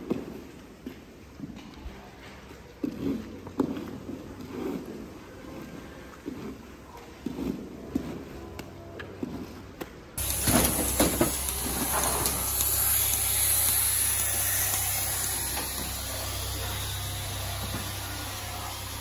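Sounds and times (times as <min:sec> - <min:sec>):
loud air hiss: 0:10.2 - 0:19.0.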